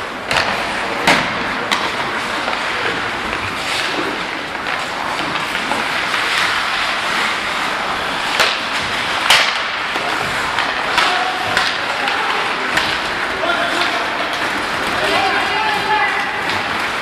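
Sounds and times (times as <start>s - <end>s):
hockey sticks and puck clacking: 0.0s - 17.0s
skates scraping on ice: 0.0s - 17.0s.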